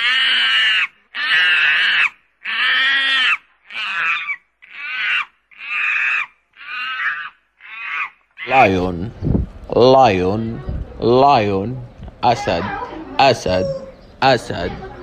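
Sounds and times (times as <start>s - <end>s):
monkey high-pitched cries: 0.0s - 8.6s, 13.2s - 14.2s.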